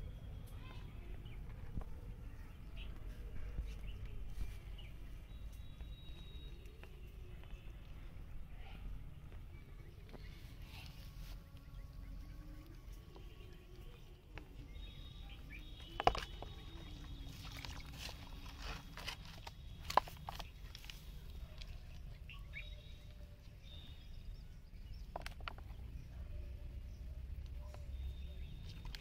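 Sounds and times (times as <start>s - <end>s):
low outdoor rumble: 0.0s - 29.0s
faint high whistle-like tone: 5.3s - 6.8s.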